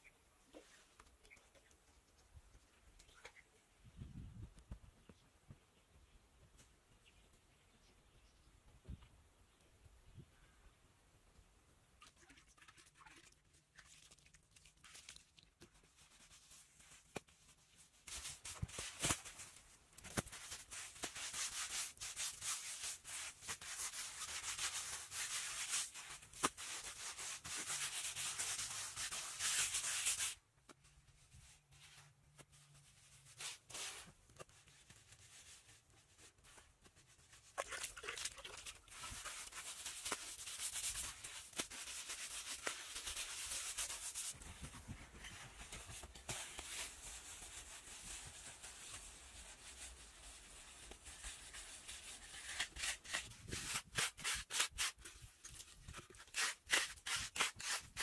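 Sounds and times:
hands scraping mud: 56.2 - 58.0.

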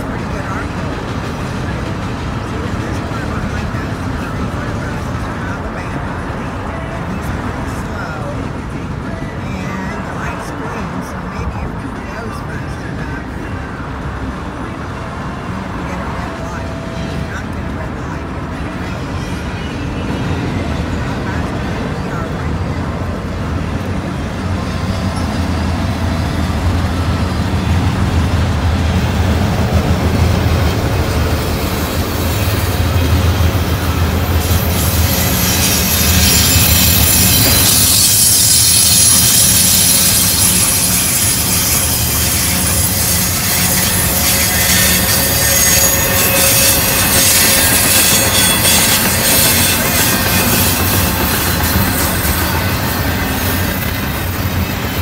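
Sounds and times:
freight train rumbling past: 0.0 - 55.0
wheel squeal and metal screeching: 31.4 - 55.0.

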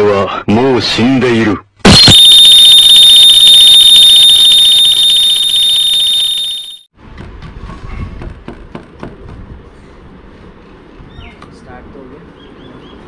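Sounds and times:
shrill electronic alarm tone: 1.9 - 6.9.

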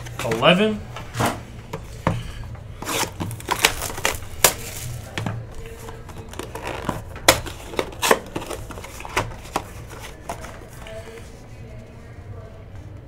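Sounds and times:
foil pack crinkling: 2.8 - 11.2.

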